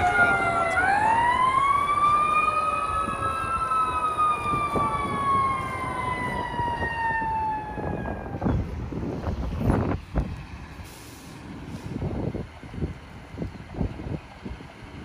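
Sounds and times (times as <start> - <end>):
fire engine siren wailing: 0.0 - 10.0.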